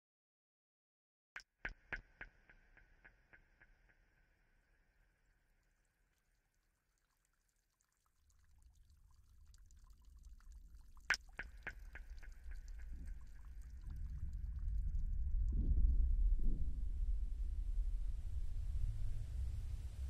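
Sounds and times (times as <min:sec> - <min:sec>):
water drop plinking: 0:07.1 - 0:14.7
low rumble: 0:12.9 - 0:20.0.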